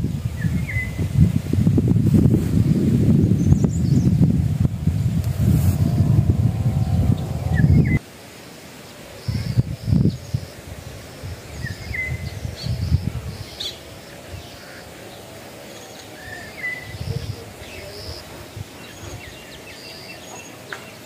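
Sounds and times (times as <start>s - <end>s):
low rumbling gusts: 0.0s - 8.0s, 9.1s - 19.6s
birds chirping: 3.1s - 8.0s, 9.1s - 21.0s.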